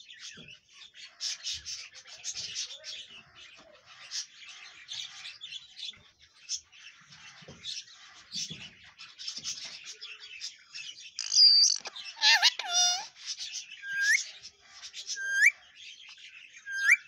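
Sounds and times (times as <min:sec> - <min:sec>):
parakeet shrill call: 0:11.2 - 0:13.1, 0:13.8 - 0:14.2, 0:15.2 - 0:15.6, 0:16.7 - 0:17.0
parakeet chattering: 0:11.2 - 0:13.2, 0:13.8 - 0:14.2.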